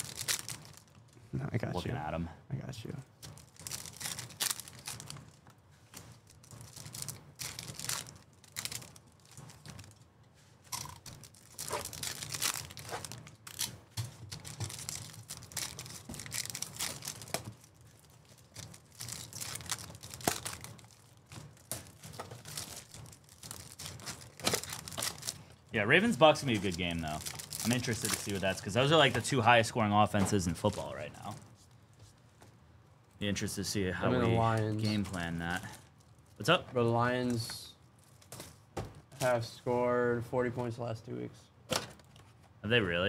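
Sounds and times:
packaging torn and crinkled: 0.0s - 1.0s, 3.2s - 5.4s, 6.0s - 10.0s, 10.7s - 25.4s, 26.2s - 29.0s.

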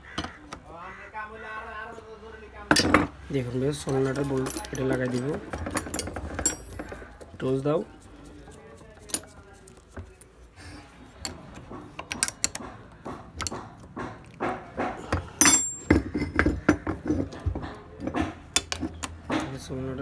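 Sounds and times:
metal clatter: 15.4s - 17.4s.

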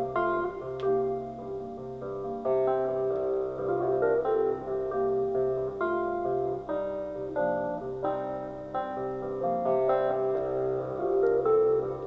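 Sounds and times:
piano: 0.0s - 12.0s
plucked guitar notes: 0.0s - 12.0s.

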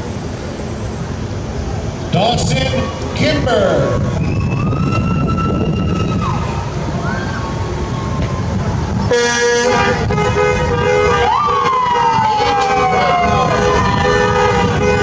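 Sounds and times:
cars passing rumble: 0.0s - 15.0s
siren wailing: 4.0s - 8.6s, 11.1s - 14.8s
vehicle horns honking: 9.1s - 11.6s, 12.8s - 15.0s.

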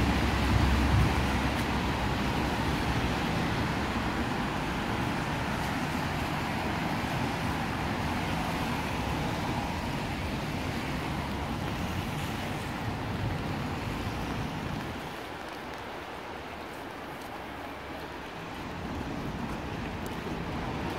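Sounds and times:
traffic on a wet road: 0.0s - 20.9s.

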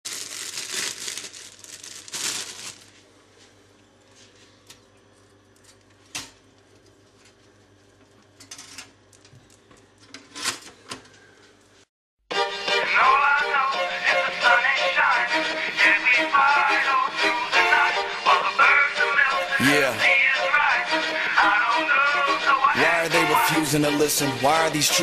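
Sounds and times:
crinkling and rustling: 0.1s - 3.1s.

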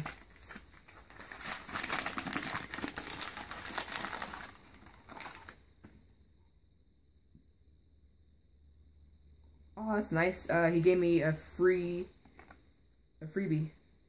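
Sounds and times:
paper wrapping crinkling: 0.0s - 5.6s.

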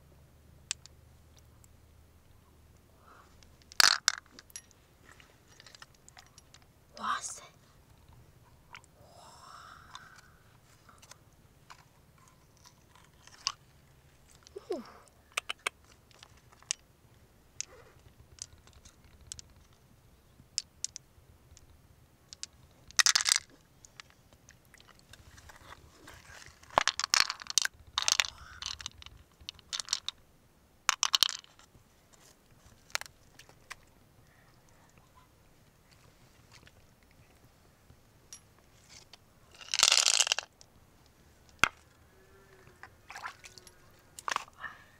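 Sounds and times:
shell clicks and crunches: 3.4s - 4.7s, 22.4s - 24.1s, 24.8s - 30.2s, 30.9s - 31.7s, 38.9s - 40.6s.

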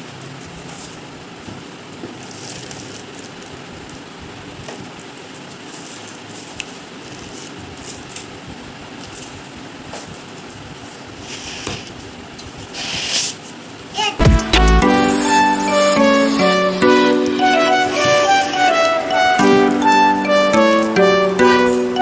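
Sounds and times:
plastic and foam rustling: 0.4s - 13.6s
background hiss: 11.1s - 12.0s, 12.7s - 22.0s.

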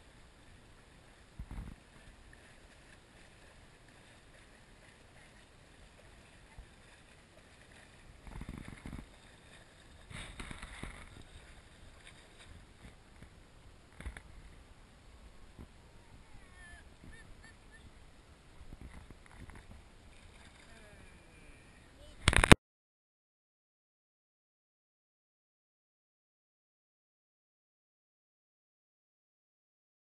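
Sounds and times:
feet kicking water splashing: 0.4s - 13.3s.

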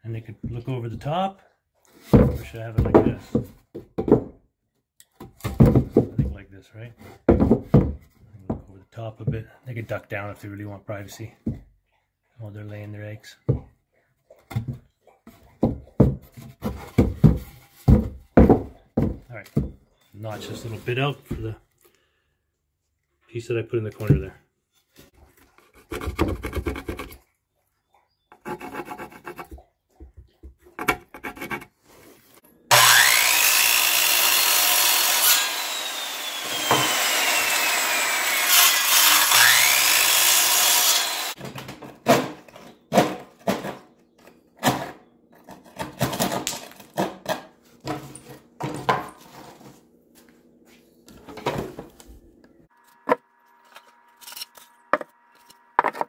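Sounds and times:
power saw cutting wood: 32.7s - 41.4s.

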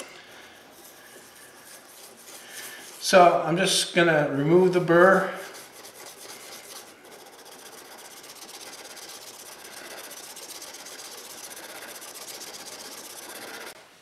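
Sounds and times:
metal rubbing on sharpening stone: 5.5s - 13.8s.

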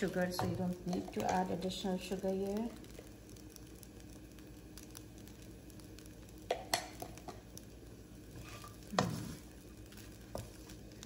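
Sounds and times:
wooden spatula scraping pan: 8.3s - 9.5s.

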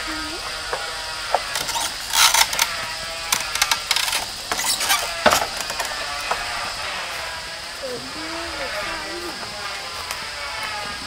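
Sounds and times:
bamboo gate rattling and knocking: 0.8s - 6.7s.

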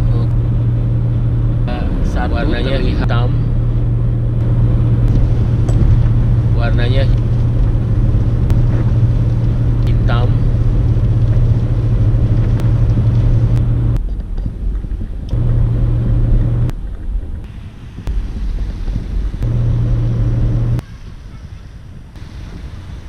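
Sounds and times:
car road noise drone: 0.0s - 23.0s.

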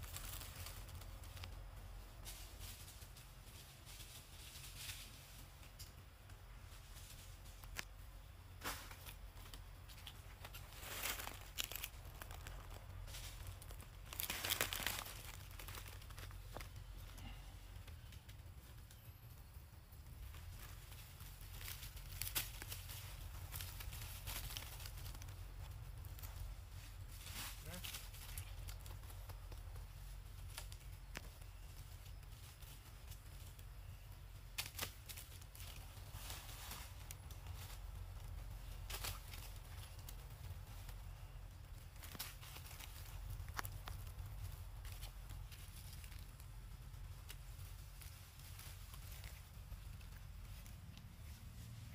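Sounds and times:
dry rustling and crackling: 0.0s - 51.9s
low steady rumble: 0.0s - 51.9s.

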